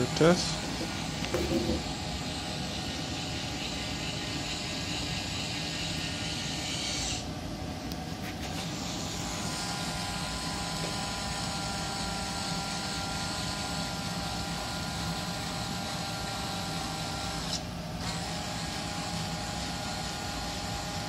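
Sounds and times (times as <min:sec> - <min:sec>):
motor whining: 0:00.0 - 0:07.3.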